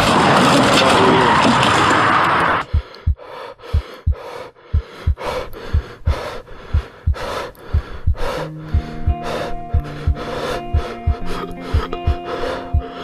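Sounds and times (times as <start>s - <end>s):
heartbeat thuds: 2.6s - 13.0s
heavy gasping breathing: 2.6s - 13.0s.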